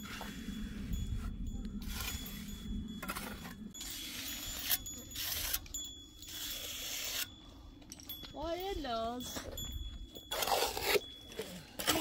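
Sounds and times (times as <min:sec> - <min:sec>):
hand tool scraping: 0:00.0 - 0:07.4, 0:10.3 - 0:12.0.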